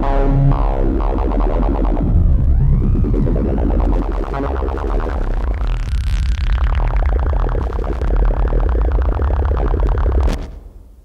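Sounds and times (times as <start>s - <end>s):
clicky synth pulse pattern: 0.0s - 10.5s
deep synth bass: 0.0s - 10.5s
falling synth sweep: 0.0s - 10.5s.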